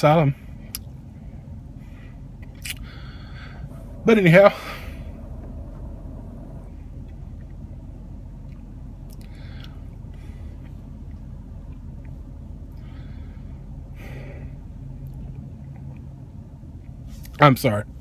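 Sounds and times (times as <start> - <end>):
car interior rumble: 0.0 - 18.0.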